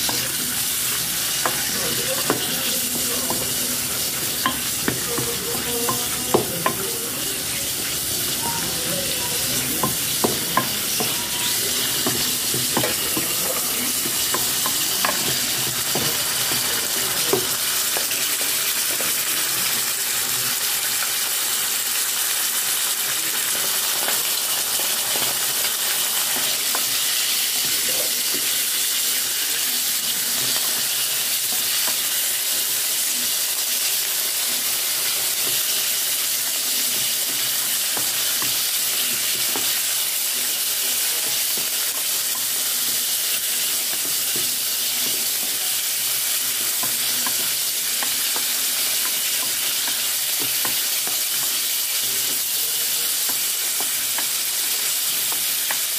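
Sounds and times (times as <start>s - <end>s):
wooden spatula stirring: 0.0s - 19.8s
meat sizzling in oil: 0.0s - 55.9s.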